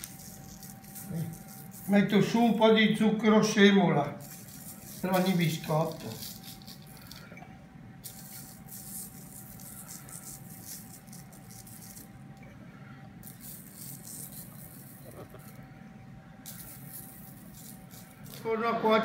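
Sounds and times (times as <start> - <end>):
sugar grains pattering: 0.0 - 3.0, 4.1 - 7.3, 8.0 - 12.2, 13.2 - 15.7, 16.4 - 18.5
faint hum: 0.0 - 19.0.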